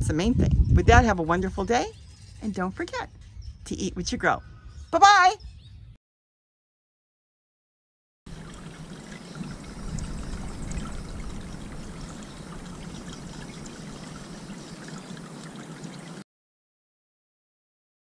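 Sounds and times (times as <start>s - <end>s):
water trickling and splashing: 8.3s - 16.2s.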